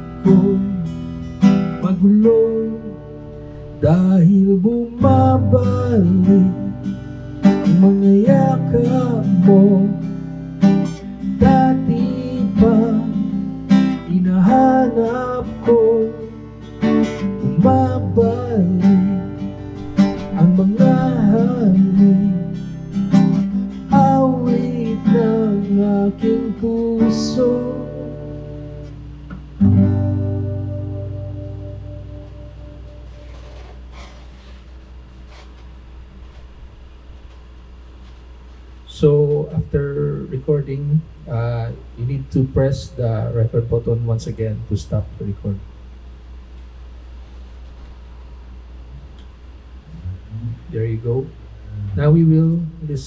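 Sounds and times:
man singing: 0.0 - 1.0, 1.7 - 3.0, 3.8 - 6.9, 7.6 - 10.1, 11.3 - 13.4, 14.0 - 16.3, 17.4 - 19.4, 20.1 - 22.6, 23.9 - 28.2, 39.0 - 43.9, 50.0 - 53.0
acoustic guitar strumming: 0.0 - 35.6, 49.8 - 53.0.

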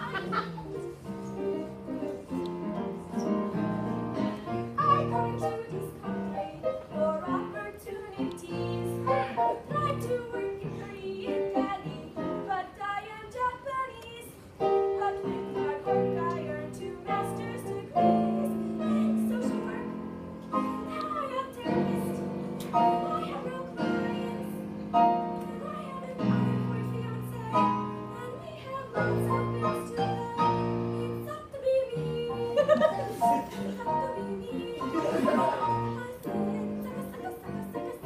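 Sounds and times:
piano accompaniment: 0.0 - 38.0
young voices singing: 28.3 - 38.0.

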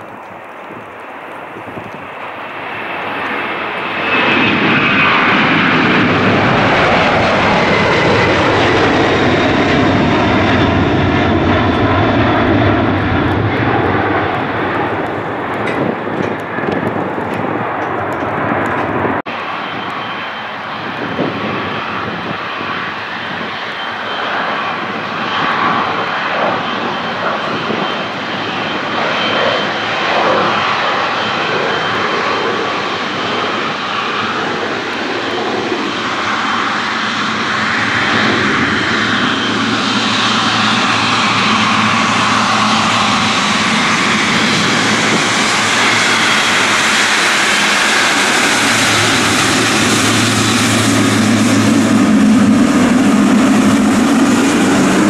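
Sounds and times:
jet engines rumbling and whining: 0.0 - 55.0.

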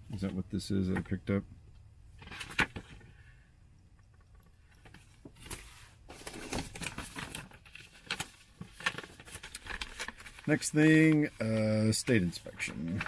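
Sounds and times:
paper rustling and crinkling: 2.2 - 3.2, 4.7 - 13.0.

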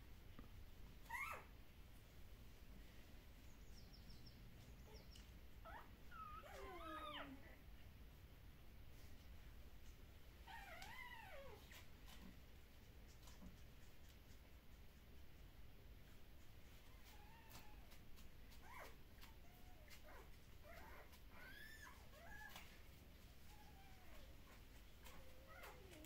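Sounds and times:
puppy whimpering: 1.0 - 1.5, 4.8 - 7.4, 10.4 - 11.8, 16.9 - 22.7, 23.4 - 26.0.

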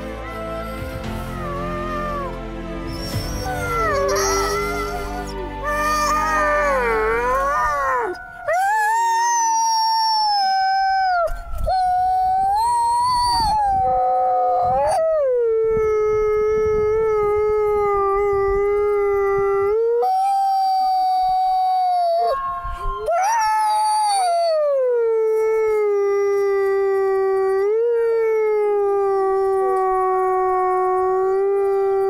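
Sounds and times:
wolf howling: 0.0 - 32.0.

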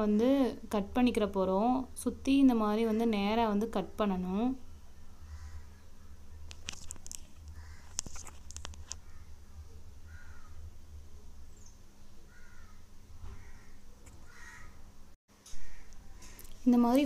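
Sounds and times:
steady low hum: 0.0 - 17.0
bird calling: 10.0 - 10.6, 11.5 - 14.8.

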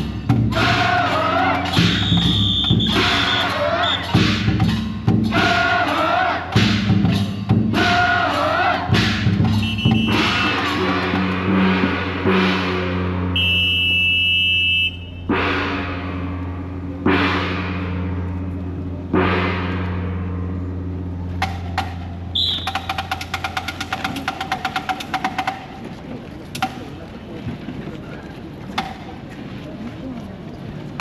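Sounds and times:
high whistle-like tone: 1.6 - 4.2, 9.5 - 10.4, 13.4 - 15.3, 22.3 - 23.1
large gong strokes: 15.1 - 22.3.

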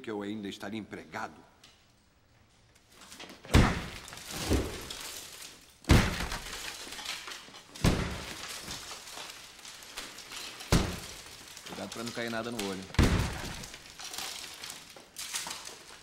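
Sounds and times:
falling debris clattering: 2.9 - 16.0
hammer smashing plaster ceiling: 3.4 - 16.0.

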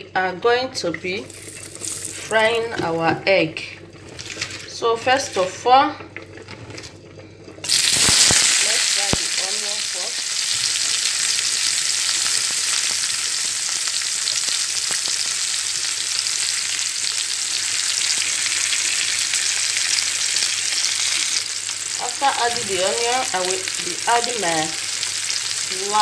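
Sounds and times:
onions sizzling in oil: 7.6 - 26.0.

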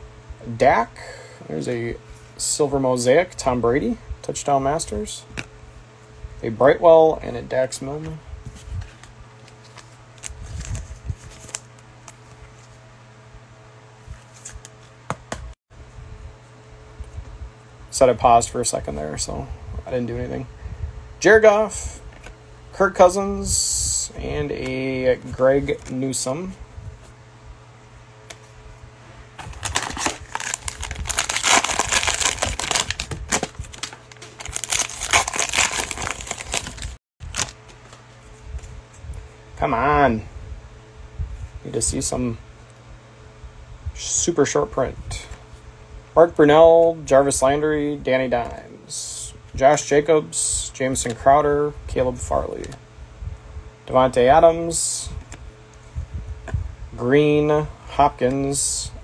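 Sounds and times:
low hum: 15.8 - 44.0
cellophane wrapper crinkling and tearing: 29.4 - 37.7.

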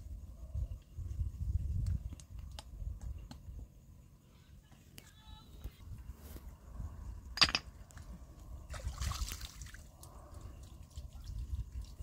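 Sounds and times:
water pouring and splashing: 8.7 - 12.0.

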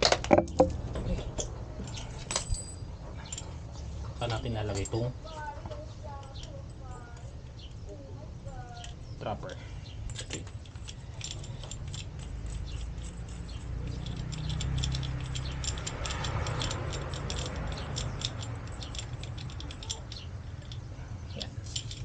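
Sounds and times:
low handling rumble: 0.0 - 22.0
bicycle seatpost clicks and rattles: 10.2 - 20.8.

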